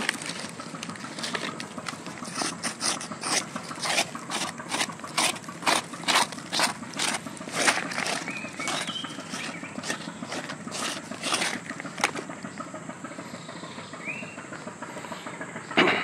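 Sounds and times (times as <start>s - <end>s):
footsteps crunching through leaf litter: 0.0s - 12.4s.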